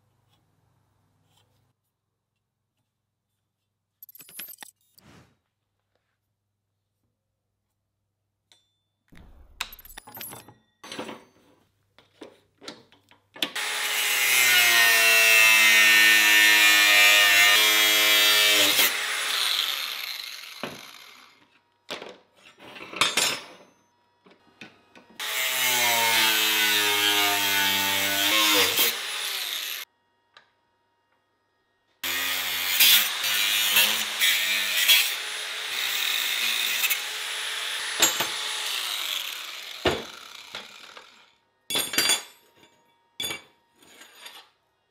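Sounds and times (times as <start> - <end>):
angle grinder cutting steel: 13.6 - 21.4, 25.2 - 29.9, 32.0 - 41.4.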